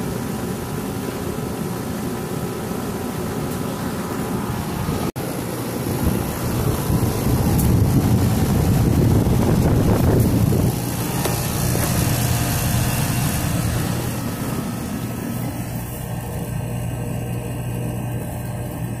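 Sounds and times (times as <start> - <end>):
air conditioner condenser humming: 0.0 - 19.0
rushing air: 4.3 - 16.6.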